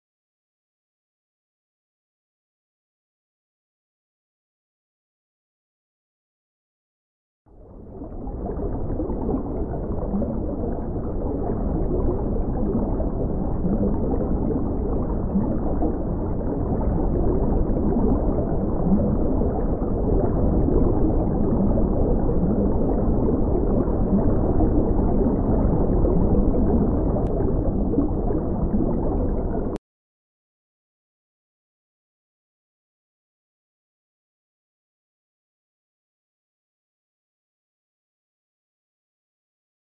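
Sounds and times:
bubbles: 7.6s - 29.8s
underwater water rush: 7.7s - 29.8s.

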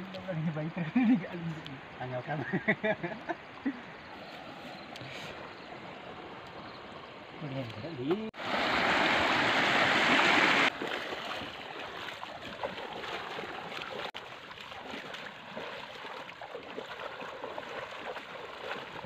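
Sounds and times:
quiet flowing water: 0.0s - 19.0s
splashes from wading: 8.0s - 19.0s
river water rushing over rocks: 8.4s - 11.5s.

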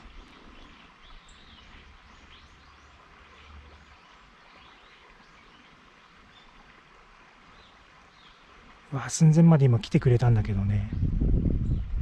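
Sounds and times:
small birds chirping: 0.0s - 9.3s
stream flowing: 0.0s - 12.0s.

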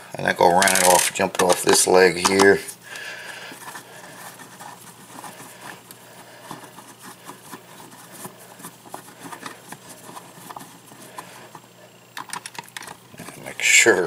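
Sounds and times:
screwdriver clicking and scraping: 0.5s - 2.6s.

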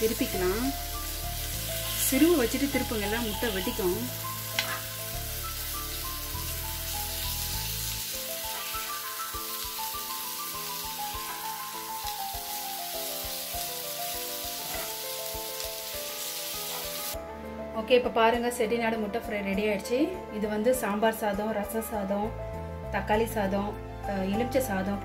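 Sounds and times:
eggs sizzling in hot oil: 0.0s - 17.2s
background music with held notes: 0.0s - 25.0s.

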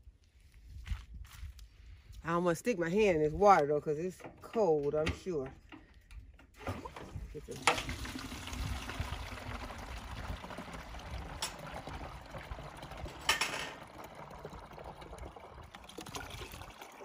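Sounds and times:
water trickling through drain hose: 6.6s - 17.0s.

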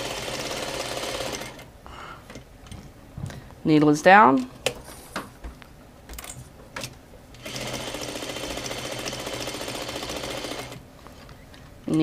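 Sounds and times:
sewing machine stitching: 0.0s - 1.6s, 7.4s - 10.8s.

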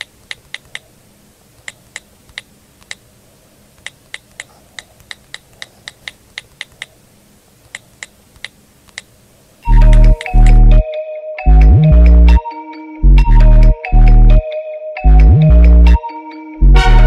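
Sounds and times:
keyboard key clicks: 0.0s - 0.9s, 1.6s - 3.0s, 3.8s - 6.9s, 7.7s - 9.1s
faint steady hum: 0.0s - 17.0s.

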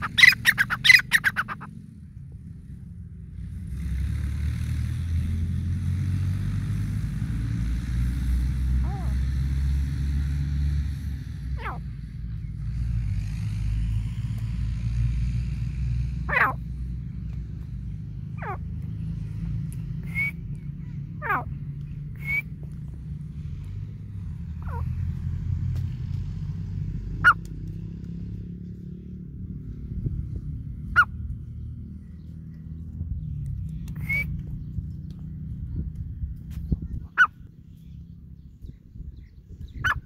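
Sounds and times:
francolin calls: 0.0s - 1.8s, 18.4s - 18.7s, 20.0s - 22.5s, 24.6s - 24.9s, 33.8s - 34.4s
steady low rumble: 11.0s - 40.0s.

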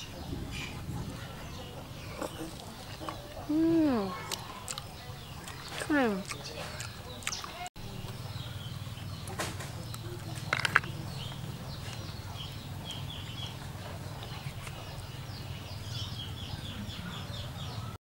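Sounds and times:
chicks chirping: 0.0s - 18.0s
snail shells knocking together: 10.4s - 11.2s.

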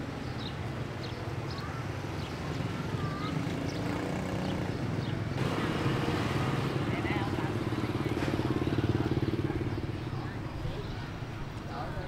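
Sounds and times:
vehicle engine humming: 5.0s - 12.0s.

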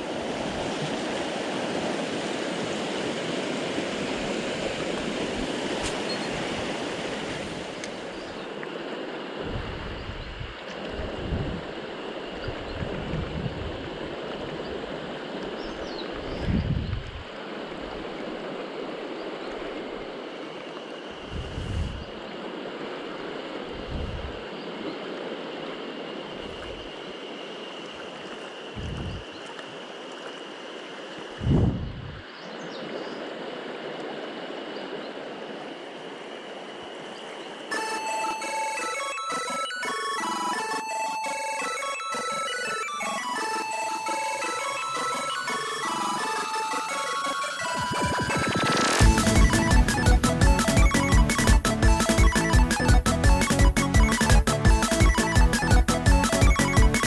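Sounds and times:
stream rushing over rocks: 0.0s - 9.4s
mountain stream rushing: 0.0s - 9.6s, 10.6s - 16.4s, 32.2s - 57.0s.

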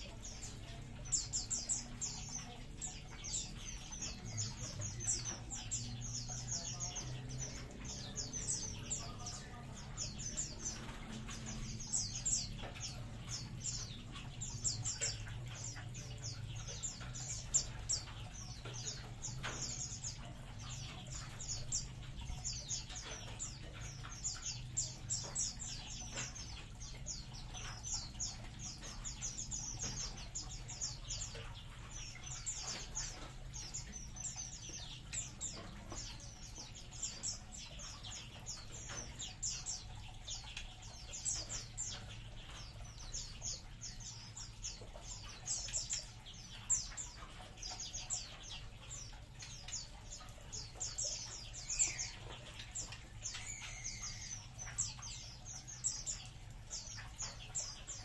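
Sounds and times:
songbirds chirping and twittering: 0.0s - 58.0s.

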